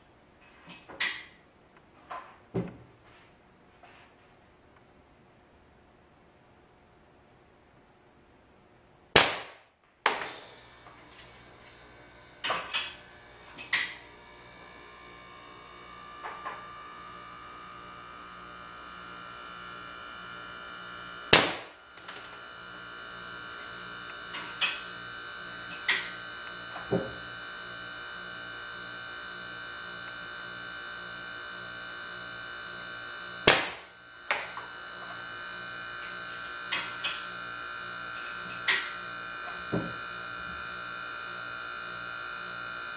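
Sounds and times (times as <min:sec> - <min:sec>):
steady electrical hum: 0:00.0 - 0:42.9
air gun shot crack: 0:09.2 - 0:10.5, 0:21.4 - 0:21.8, 0:33.5 - 0:33.9.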